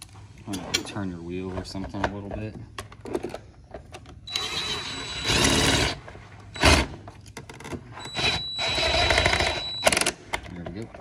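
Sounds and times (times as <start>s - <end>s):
impact driver whirring: 4.3s - 6.0s, 6.6s - 7.1s, 8.0s - 10.2s.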